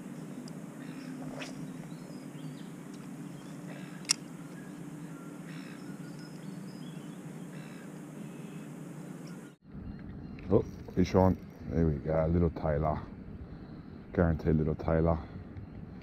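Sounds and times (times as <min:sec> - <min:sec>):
low outdoor hum: 0:00.0 - 0:16.0
faint bird calls: 0:00.2 - 0:10.6.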